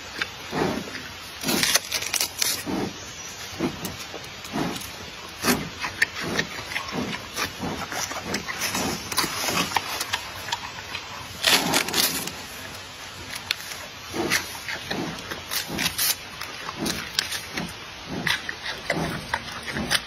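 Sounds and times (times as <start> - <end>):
panda chewing bamboo: 0.0 - 20.0
bamboo stalks cracking: 1.4 - 2.7, 15.3 - 17.5.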